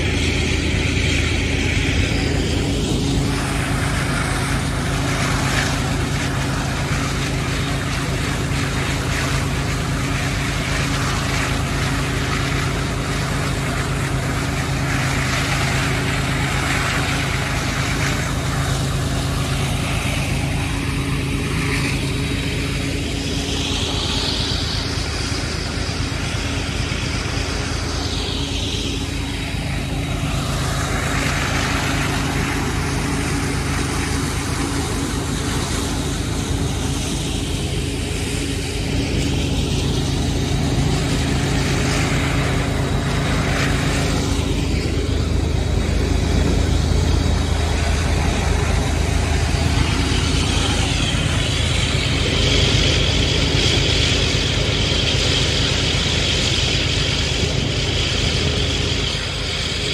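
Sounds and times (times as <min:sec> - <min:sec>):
locomotive engine drone: 0:00.0 - 0:59.9
high whining tone: 0:17.8 - 0:55.3.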